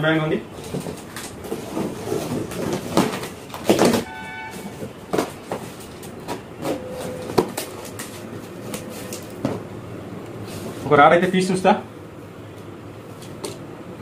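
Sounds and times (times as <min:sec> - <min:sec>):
brief high tone: 0:04.0 - 0:04.8, 0:06.7 - 0:07.5.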